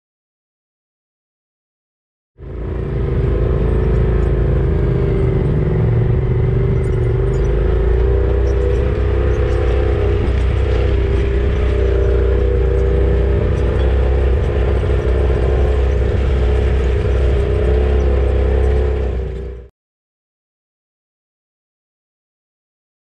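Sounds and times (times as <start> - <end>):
utility vehicle engine whining: 2.4 - 19.7.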